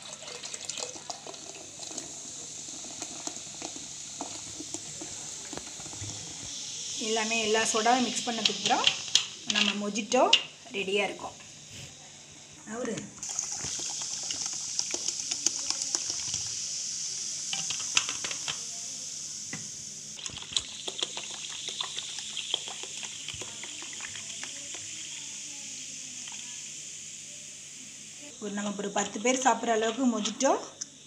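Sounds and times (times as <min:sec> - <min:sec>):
soda water pouring: 0:00.0 - 0:09.5, 0:13.2 - 0:18.7, 0:20.2 - 0:25.5
fizzing bubbles hissing: 0:00.0 - 0:12.5, 0:13.2 - 0:31.0.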